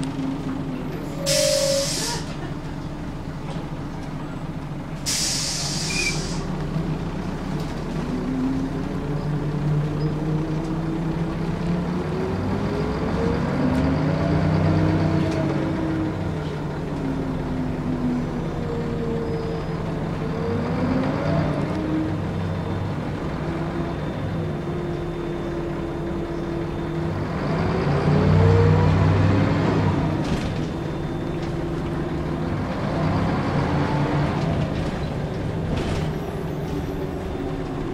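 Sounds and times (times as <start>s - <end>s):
bus diesel engine pulling away: 0.0s - 37.9s
compressed air hisses: 5.1s - 6.4s.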